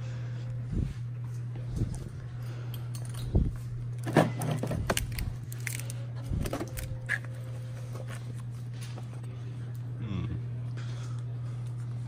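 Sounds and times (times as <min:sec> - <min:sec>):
steady low hum: 0:00.0 - 0:12.0
plastic wrapping crinkling: 0:04.9 - 0:07.2.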